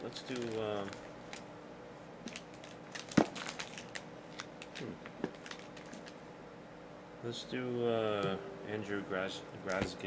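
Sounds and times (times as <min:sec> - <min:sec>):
card wrappers crinkling: 0:00.2 - 0:01.4, 0:02.2 - 0:06.2.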